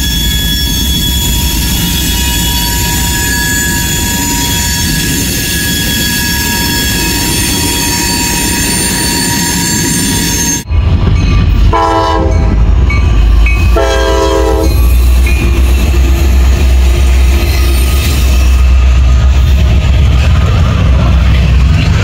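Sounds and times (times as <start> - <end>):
train rumble and rail clatter: 0.0 - 22.0
locomotive horn blasts: 11.7 - 12.6, 13.8 - 14.8.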